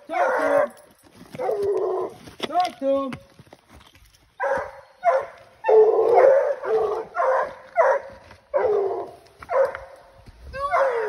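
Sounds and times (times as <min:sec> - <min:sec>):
hounds barking and bawling: 0:00.0 - 0:02.2, 0:04.4 - 0:11.0.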